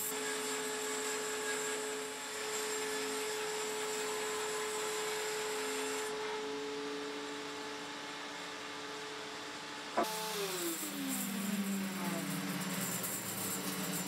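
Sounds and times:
bandsaw humming: 10.0s - 14.0s
saw blade cutting wood: 10.0s - 14.0s.

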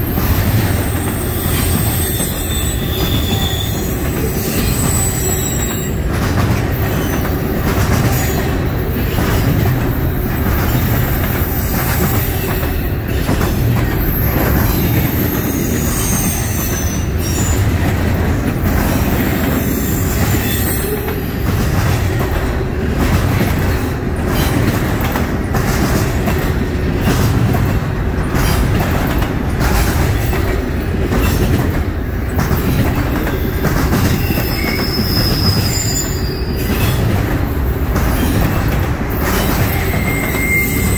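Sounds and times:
train wheels rumbling on rail: 0.0s - 40.9s
high-pitched wheel squeals: 1.0s - 6.0s, 14.0s - 17.6s, 34.1s - 37.0s, 39.6s - 40.9s.

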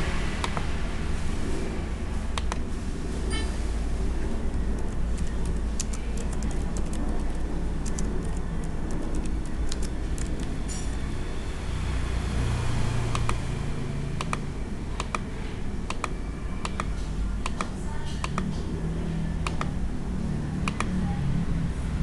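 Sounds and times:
steady low rumble: 0.0s - 22.0s
keyboard key clicks: 14.2s - 14.4s.

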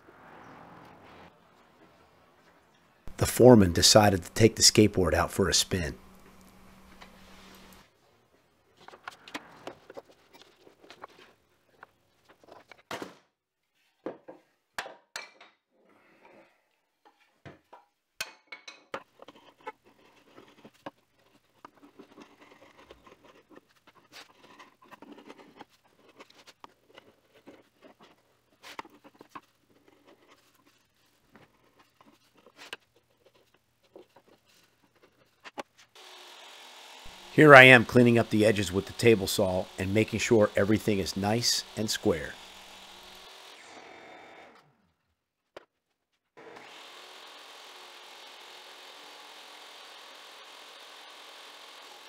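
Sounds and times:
chisel scraping wood: 8.8s - 12.8s, 19.0s - 43.6s.

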